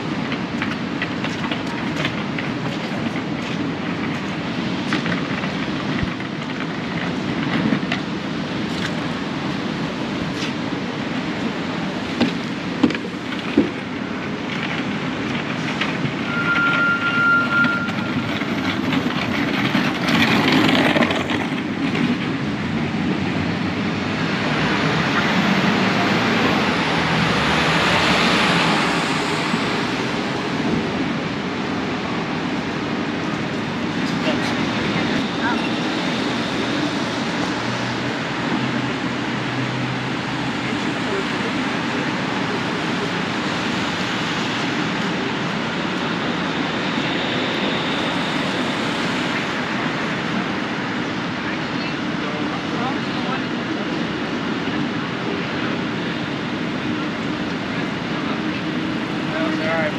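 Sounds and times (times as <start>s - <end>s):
traffic rumble: 0.0s - 59.9s
vehicles passing: 0.0s - 59.9s
high-pitched squeal: 16.2s - 18.8s, 46.2s - 50.2s.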